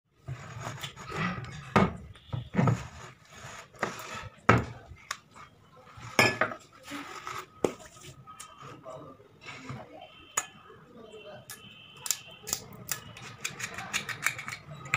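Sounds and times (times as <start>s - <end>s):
glass and metal knocks and clinks: 6.2s - 6.6s.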